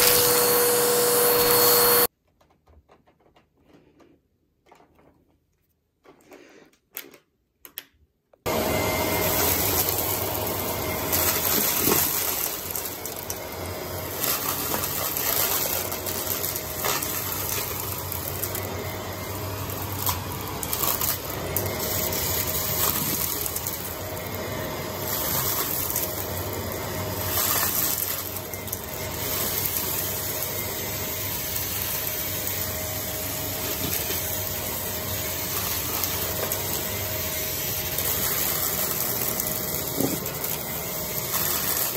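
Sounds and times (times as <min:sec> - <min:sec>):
vacuum cleaner running: 0:00.0 - 0:02.1, 0:08.4 - 0:41.9
debris clicks in vacuum: 0:10.8 - 0:13.4, 0:14.1 - 0:24.3, 0:24.9 - 0:30.7, 0:35.4 - 0:41.9.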